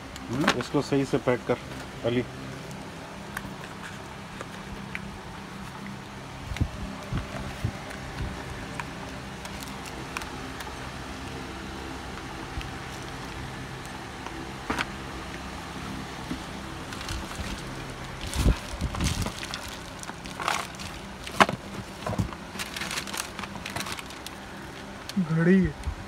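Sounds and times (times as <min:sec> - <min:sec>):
steady low hum: 0:00.0 - 0:26.0
cardboard packaging rustling and tapping: 0:16.2 - 0:24.9.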